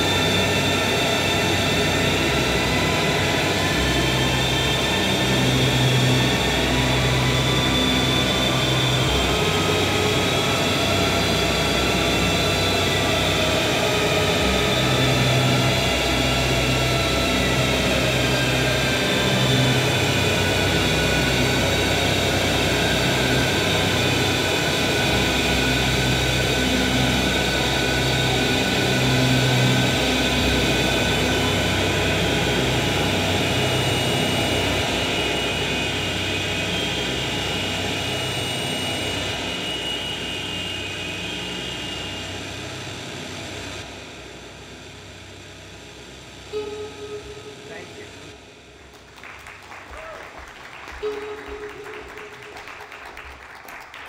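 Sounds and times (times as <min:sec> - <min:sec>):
noise drone music: 0:00.0 - 0:49.3, 0:50.9 - 0:53.6.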